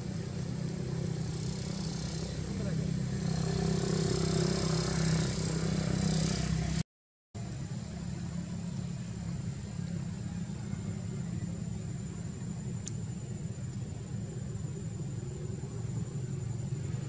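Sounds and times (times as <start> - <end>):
low engine hum: 0.0 - 6.8, 7.4 - 17.0
faint high whine: 7.4 - 17.0.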